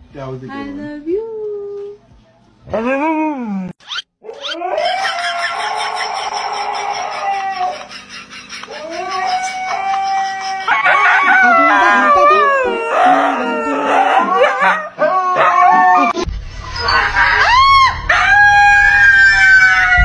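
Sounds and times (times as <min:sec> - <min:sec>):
huskies howling: 0:04.2 - 0:08.0, 0:08.6 - 0:20.0.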